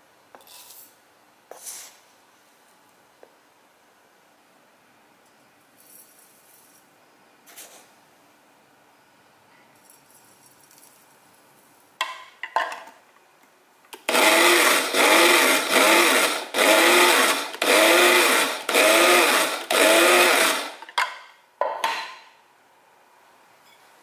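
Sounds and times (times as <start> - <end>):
spice grinder whirring: 14.1 - 20.8.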